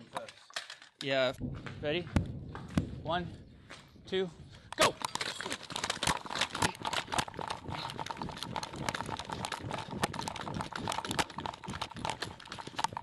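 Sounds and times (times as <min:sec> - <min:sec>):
clatter of carried gear: 0:04.8 - 0:13.0
boots running on gravel: 0:05.6 - 0:13.0.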